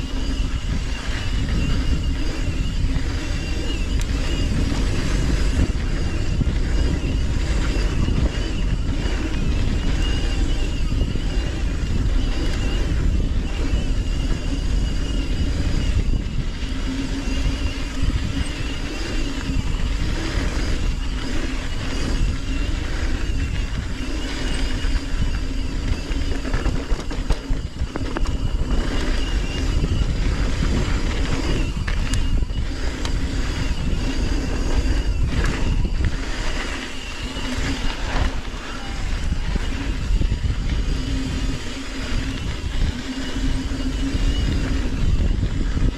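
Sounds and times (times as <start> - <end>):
bike tyres rumbling on dirt: 0.0 - 45.9
bike knocks and rattles: 25.7 - 29.8.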